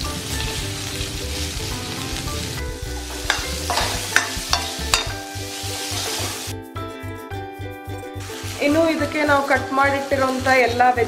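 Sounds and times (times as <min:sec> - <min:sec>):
onion sizzling in hot oil: 0:00.0 - 0:11.0
soft background music with beat: 0:00.0 - 0:11.0
ladle clicking against pan: 0:03.2 - 0:05.2.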